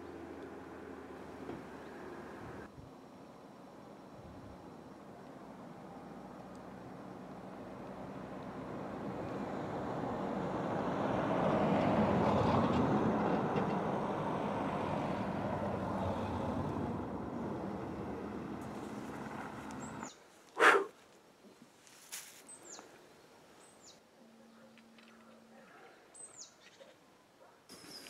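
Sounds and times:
vehicle passing on road: 5.4 - 20.2.

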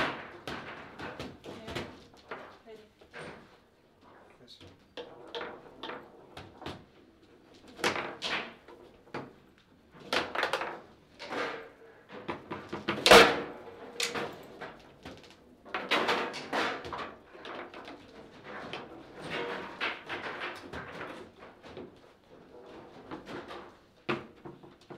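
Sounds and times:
table football plastic clacks: 4.7 - 24.9.

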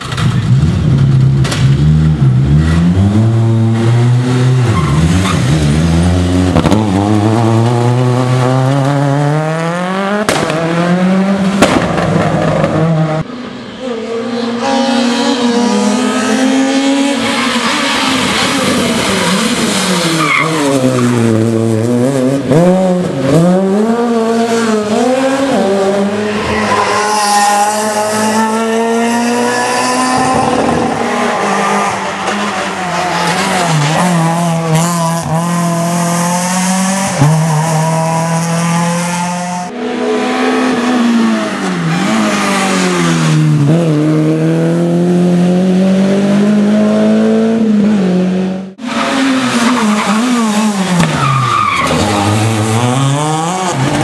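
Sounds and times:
rally car engines revving: 0.0 - 54.0
sharp cracks: 10.3 - 10.6, 11.6 - 12.7.

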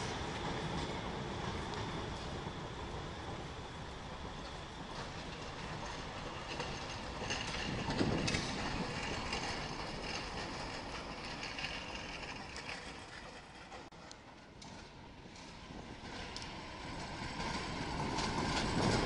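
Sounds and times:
tram rolling over rails: 0.0 - 19.0.

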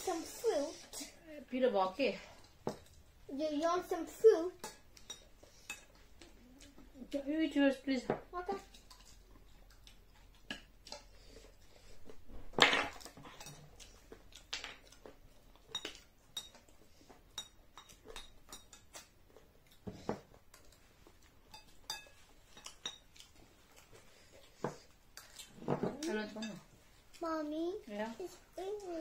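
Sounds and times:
spoon clinking against a bowl: 17.4 - 19.1, 21.5 - 23.1.

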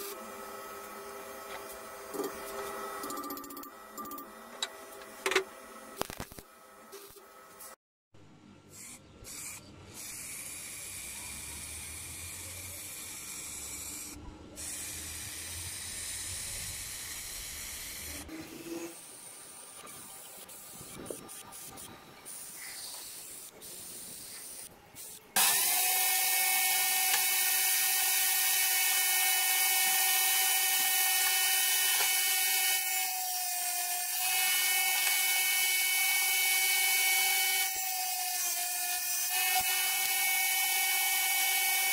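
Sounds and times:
spray can hissing: 8.8 - 11.0, 20.4 - 25.2
table saw running: 25.4 - 41.9.

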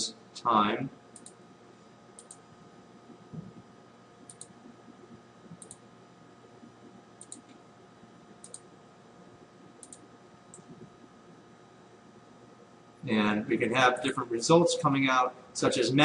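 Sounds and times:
faint mouse clicks: 1.2 - 1.4, 2.2 - 2.4, 3.4 - 4.5, 5.5 - 5.8, 7.2 - 7.6, 8.4 - 8.7, 9.8 - 10.9.

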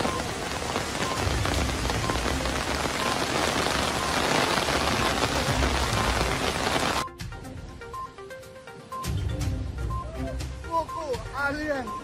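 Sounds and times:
floodwater rushing: 0.0 - 7.0
heavy rain on street: 0.0 - 7.0.

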